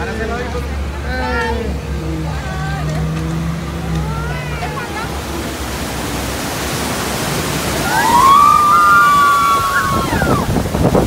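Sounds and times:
churning whitewater rushing: 0:00.0 - 0:11.0
water splashing against raft: 0:01.4 - 0:11.0.

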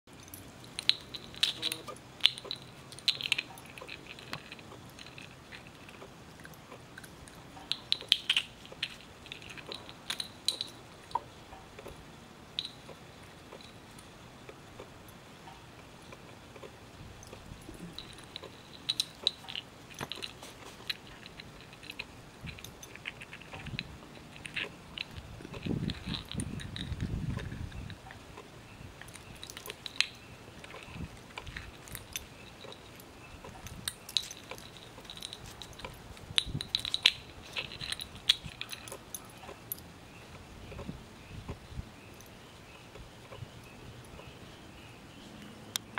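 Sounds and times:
puppy chewing a ball: 0:16.0 - 0:39.8.

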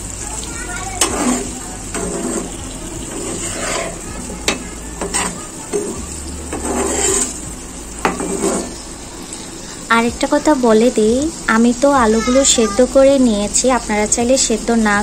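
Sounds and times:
oil sizzling: 0:00.0 - 0:15.0
spatula scraping a pan: 0:00.6 - 0:09.0.

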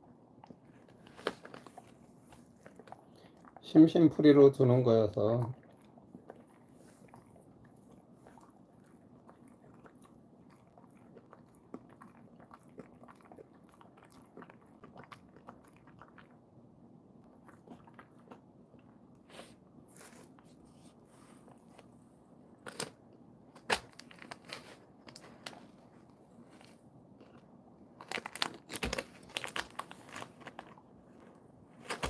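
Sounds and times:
dog chewing a treat: 0:05.3 - 0:16.4.

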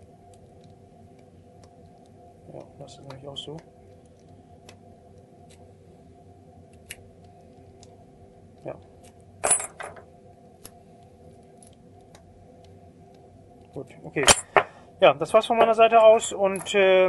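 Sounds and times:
sharp metal clack: 0:14.2 - 0:14.7.

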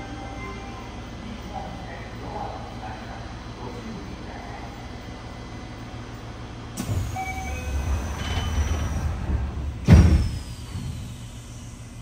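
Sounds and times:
subway train running: 0:00.0 - 0:12.0
whining inverter tones: 0:06.8 - 0:09.2.

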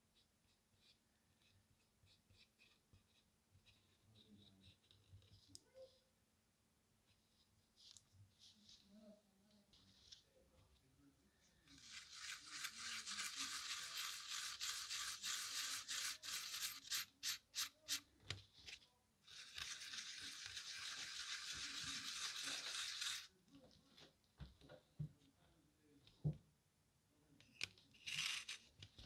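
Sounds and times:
sanding sponge scrubbing metal: 0:11.8 - 0:17.7, 0:19.3 - 0:23.3.

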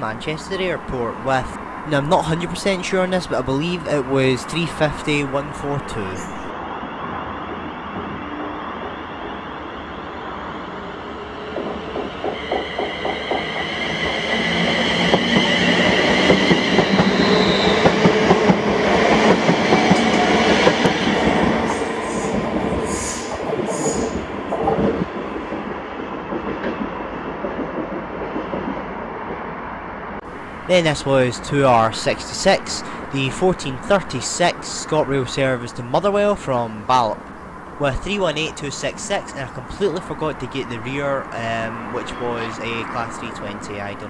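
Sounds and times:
train traction motor whine: 0:06.1 - 0:25.2.

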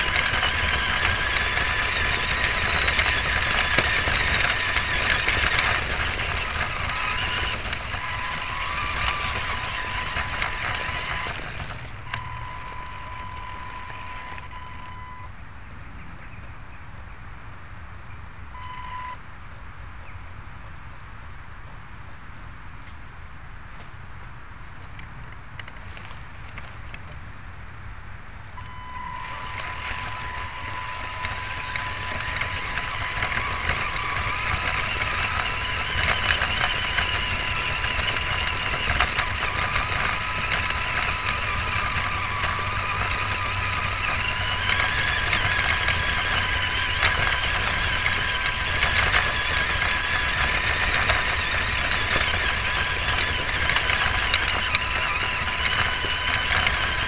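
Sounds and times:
car knocking over ground: 0:00.0 - 0:15.2
toy car electric motor whining: 0:00.0 - 0:15.3, 0:28.6 - 0:57.0.

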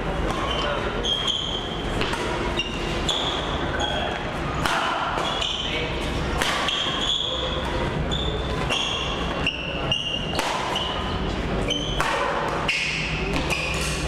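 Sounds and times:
sneakers squeaking on court: 0:00.3 - 0:04.2, 0:05.1 - 0:05.7, 0:06.7 - 0:14.0
rackets hitting shuttlecock: 0:01.9 - 0:03.4, 0:04.6 - 0:05.6, 0:06.3 - 0:07.0, 0:08.5 - 0:11.0, 0:11.6 - 0:14.0.

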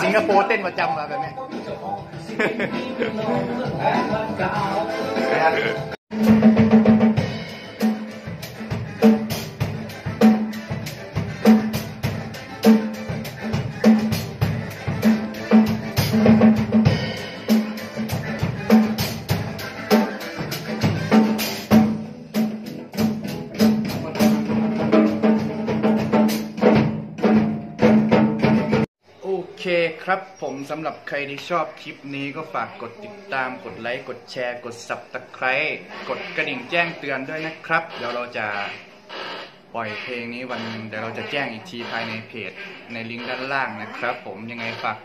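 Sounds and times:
rock music with drum kit: 0:01.4 - 0:28.9.

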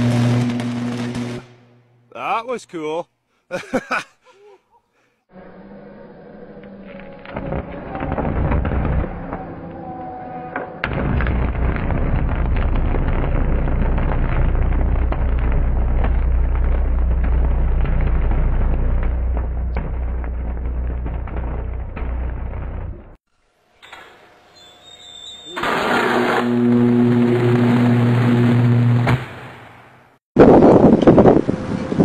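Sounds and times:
electrical arcing crackling: 0:00.0 - 0:01.8, 0:10.8 - 0:23.2, 0:25.4 - 0:29.6
steady low electrical buzz: 0:25.6 - 0:29.1.

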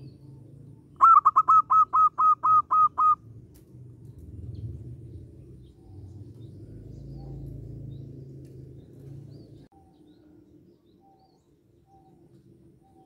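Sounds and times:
dove cooing: 0:01.0 - 0:03.2.

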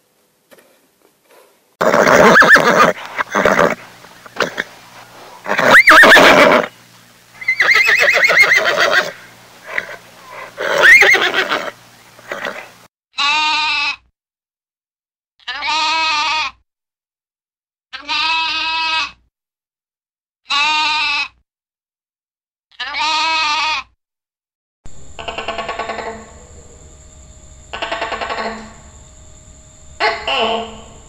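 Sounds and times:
horse whinnying: 0:01.8 - 0:04.7, 0:05.4 - 0:06.7, 0:07.4 - 0:13.8
sheep bleating: 0:13.2 - 0:14.1, 0:15.4 - 0:16.6, 0:18.0 - 0:19.2, 0:20.5 - 0:21.4, 0:22.7 - 0:23.9.

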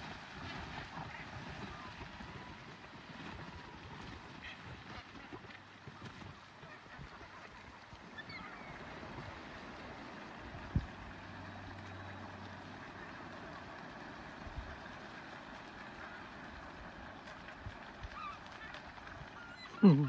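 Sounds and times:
water noise: 0:00.0 - 0:20.0
wind: 0:00.0 - 0:20.0
flock of seabirds calling: 0:04.3 - 0:20.0.

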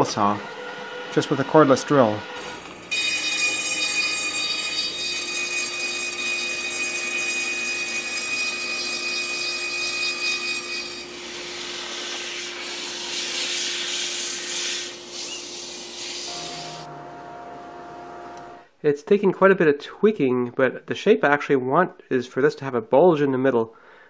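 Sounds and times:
table saw whining and cutting: 0:00.0 - 0:18.6
sandpaper hissing on spinning drum: 0:10.8 - 0:16.9.

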